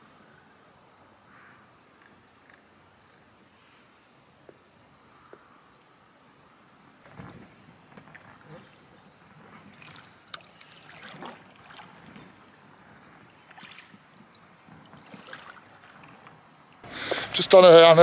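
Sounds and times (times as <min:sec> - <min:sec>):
paddle splashing in water: 0:07.9 - 0:17.6
water dripping: 0:09.8 - 0:12.4, 0:13.3 - 0:16.4.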